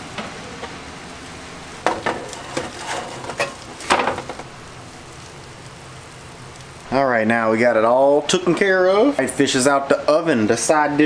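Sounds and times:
light sizzle: 0:00.0 - 0:11.0
metal pan clanking and scraping: 0:01.9 - 0:04.4.

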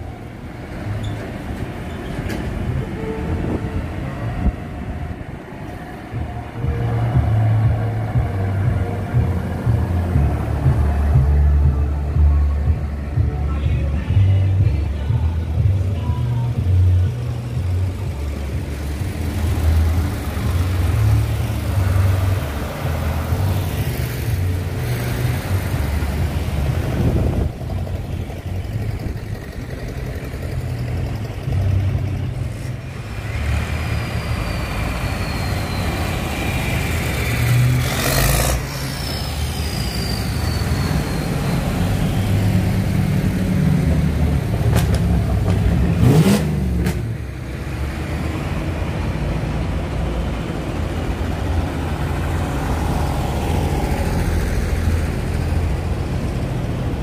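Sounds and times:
tractor engines running: 0:00.0 - 0:57.0.

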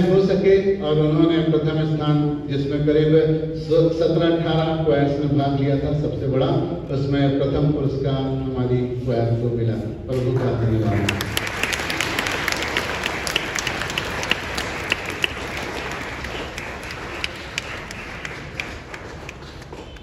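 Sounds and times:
crowd applauding: 0:10.7 - 0:20.0.

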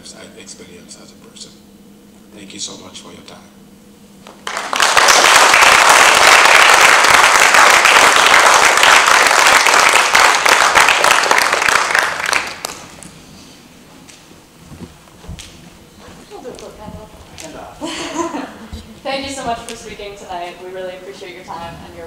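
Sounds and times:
audience applauding: 0:04.3 - 0:13.1.

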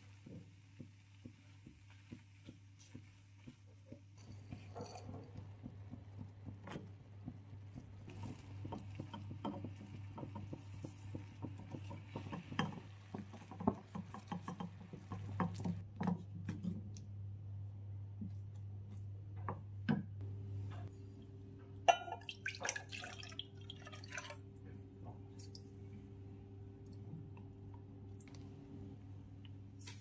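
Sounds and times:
spatula stirring berries in a pan: 0:00.0 - 0:16.8.

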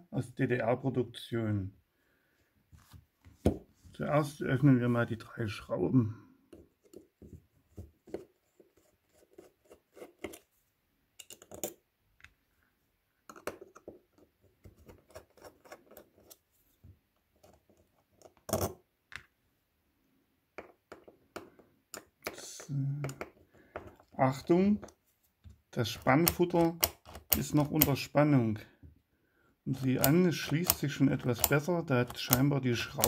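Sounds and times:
screwdriver clicks and scrapes on metal: 0:08.8 - 0:10.5, 0:11.2 - 0:11.8, 0:14.6 - 0:16.4, 0:26.0 - 0:28.1, 0:29.7 - 0:33.0.

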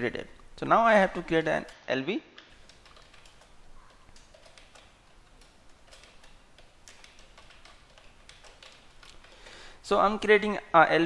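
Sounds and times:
typing on keyboard: 0:02.4 - 0:09.6.

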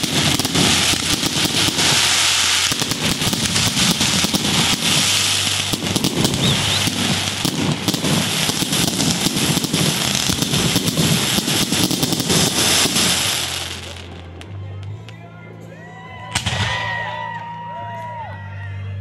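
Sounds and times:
fireworks crackling and popping: 0:00.0 - 0:15.2.

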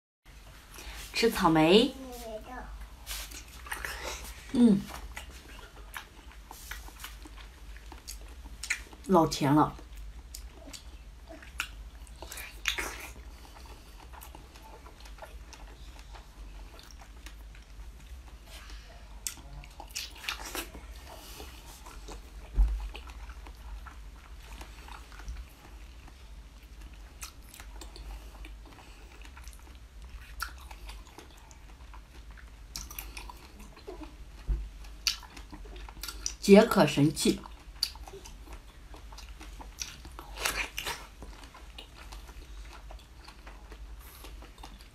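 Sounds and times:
wet biting and chewing: 0:04.9 - 0:09.0, 0:09.8 - 0:18.3, 0:19.2 - 0:36.4, 0:37.4 - 0:44.9.

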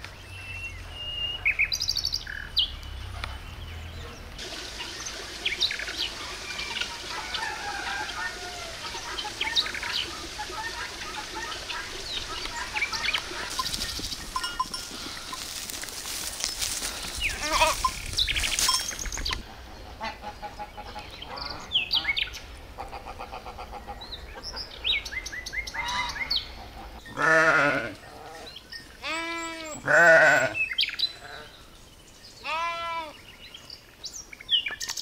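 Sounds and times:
sheep bleating: 0:17.4 - 0:17.9, 0:27.1 - 0:28.0, 0:29.0 - 0:30.6, 0:32.4 - 0:33.2.

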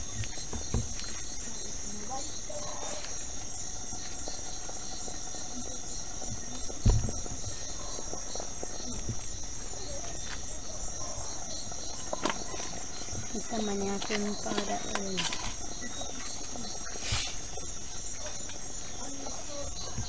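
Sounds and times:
crickets chirring: 0:00.0 - 0:20.0
thump: 0:06.7 - 0:07.6.

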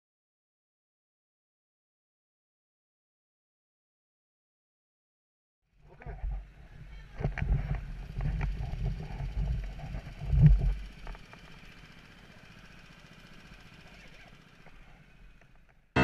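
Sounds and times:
go-kart engines rumbling: 0:05.8 - 0:16.0.

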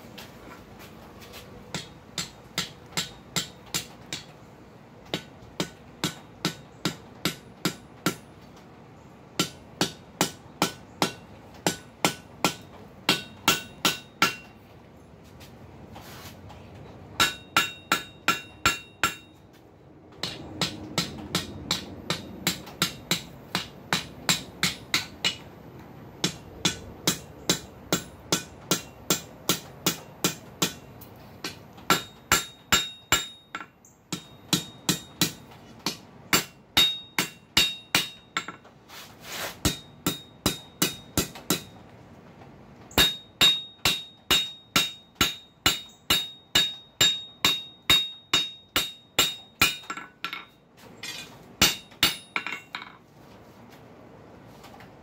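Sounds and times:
hammer striking hot steel: 0:01.7 - 0:04.3, 0:05.1 - 0:08.3, 0:09.4 - 0:14.5, 0:17.2 - 0:19.4, 0:20.2 - 0:25.5, 0:26.2 - 0:38.7, 0:39.6 - 0:41.8, 0:42.9 - 0:53.0
anvil ringing: 0:36.4 - 0:38.6, 0:43.0 - 0:53.0.

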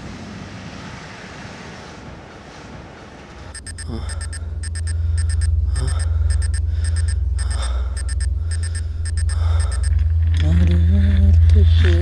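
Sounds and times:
rapid high electronic beeps: 0:03.6 - 0:09.9.

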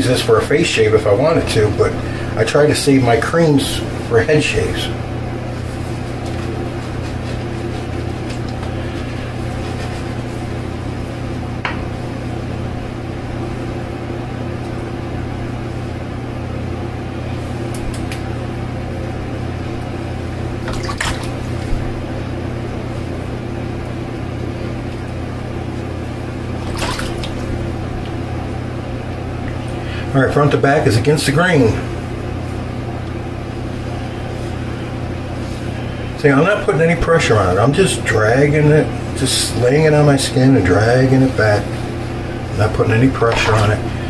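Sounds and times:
air conditioner humming: 0:00.0 - 0:44.0.

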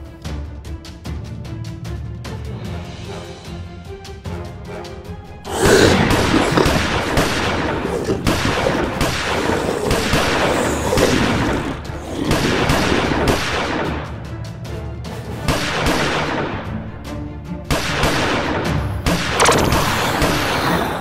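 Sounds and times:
background music: 0:00.0 - 0:21.0
rapid gunfire: 0:06.0 - 0:14.1, 0:15.5 - 0:16.7, 0:17.7 - 0:20.6.

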